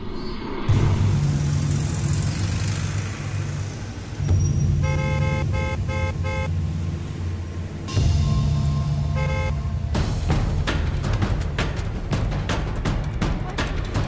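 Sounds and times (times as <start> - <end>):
car engine and road rumble: 0.7 - 14.0
car horn short blasts: 4.8 - 6.5, 9.1 - 9.6.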